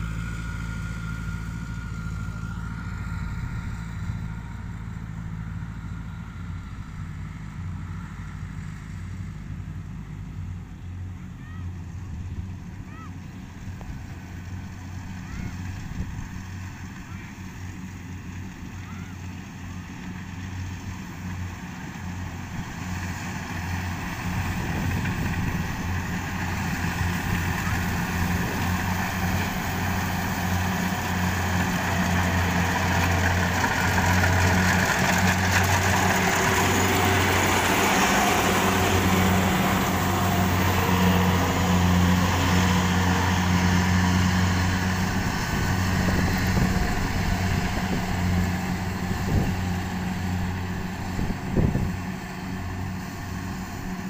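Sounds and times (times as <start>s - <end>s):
diesel engine hum: 0.0s - 54.0s
cutter and threshing drum rattle: 24.2s - 39.0s.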